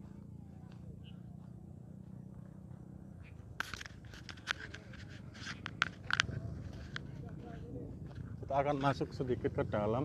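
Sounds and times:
low steady rumble: 0.0s - 10.0s
footsteps on gravel path: 0.6s - 9.9s.

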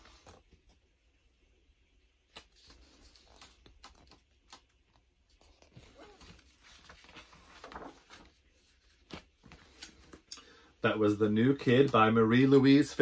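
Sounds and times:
book rustling and tapping: 2.3s - 10.3s.

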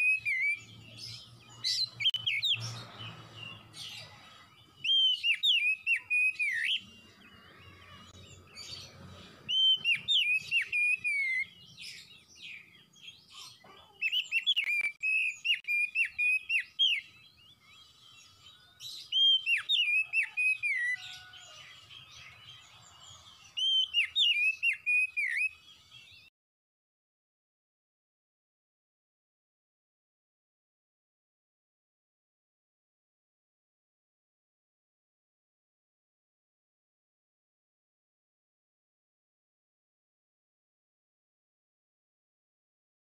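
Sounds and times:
bird singing whistled notes: 0.0s - 7.1s, 9.4s - 13.3s, 14.0s - 26.3s.

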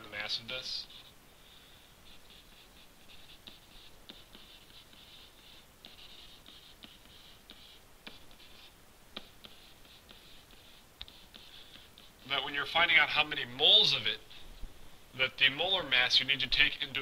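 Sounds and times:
stylus scratching on a tablet: 0.3s - 12.6s.

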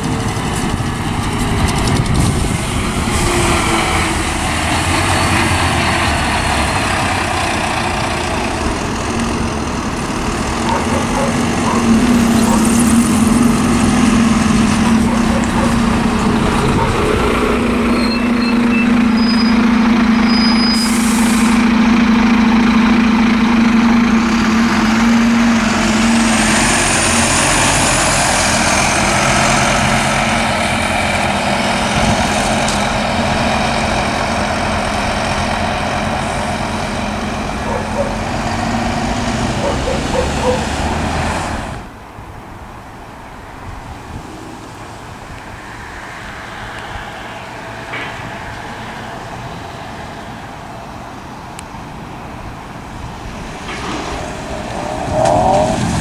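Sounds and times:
bus engine and tyre rumble: 0.0s - 56.0s
air hiss: 20.7s - 21.6s.

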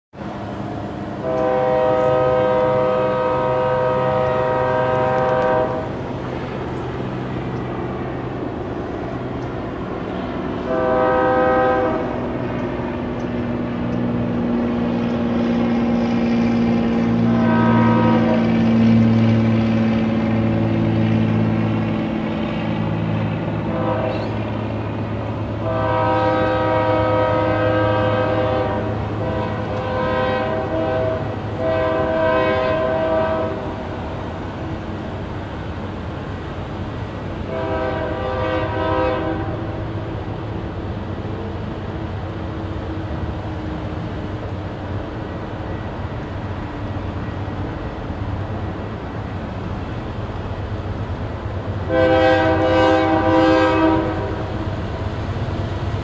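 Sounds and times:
locomotive engine humming: 0.2s - 56.0s
locomotive air horn blasts: 1.2s - 6.0s, 10.6s - 12.3s, 16.3s - 19.2s, 23.6s - 24.7s, 25.6s - 33.8s, 37.4s - 39.8s, 51.8s - 54.6s.

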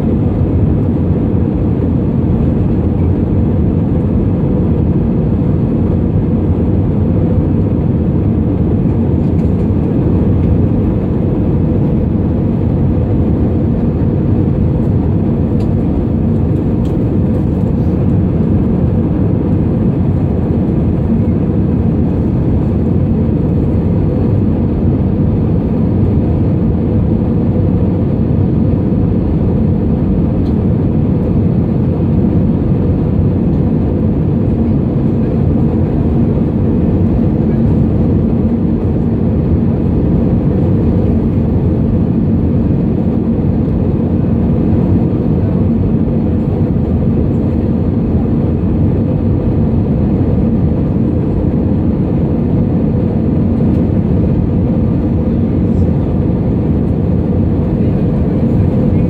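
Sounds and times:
airliner cabin engine rumble: 0.0s - 59.0s.

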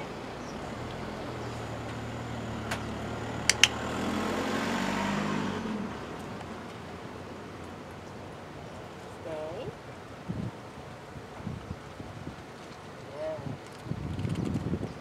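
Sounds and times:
vehicle engine passing: 0.0s - 9.2s
sharp double click: 3.5s - 3.8s.

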